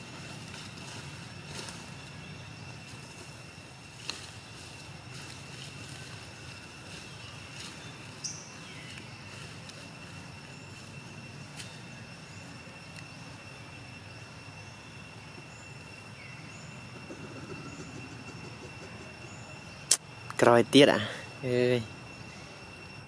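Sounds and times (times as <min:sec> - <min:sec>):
brief falling calls: 0:16.9 - 0:20.1.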